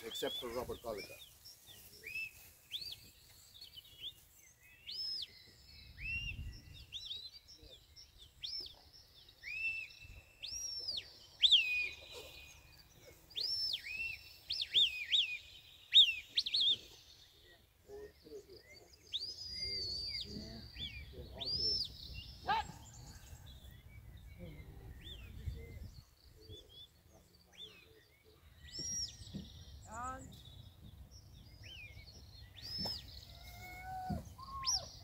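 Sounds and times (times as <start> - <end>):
shepherd's whistles: 33.9 - 35.0.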